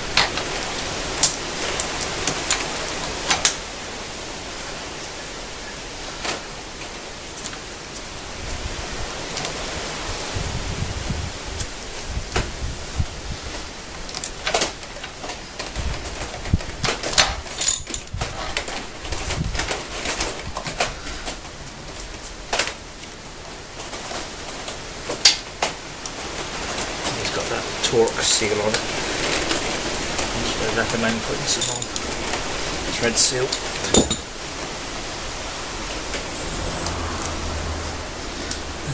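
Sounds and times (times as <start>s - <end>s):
background hiss: 0.0s - 38.9s
wrench clicks and metal knocks: 33.8s - 34.3s.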